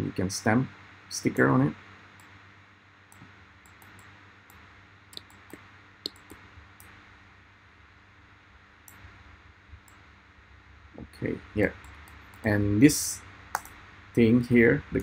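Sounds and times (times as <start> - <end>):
faint steady hiss: 0.0 - 15.0
computer mouse clicking: 3.1 - 6.9, 13.5 - 13.8.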